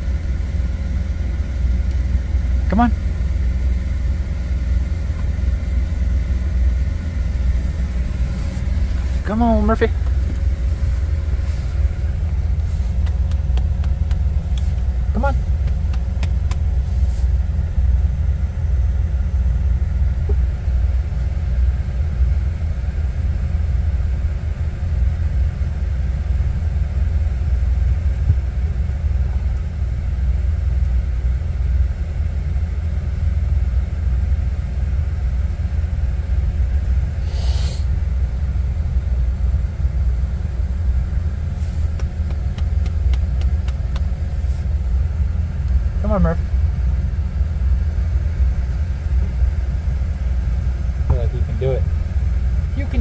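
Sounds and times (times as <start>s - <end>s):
low rumble: 0.0s - 53.0s
short hiss: 37.2s - 37.9s.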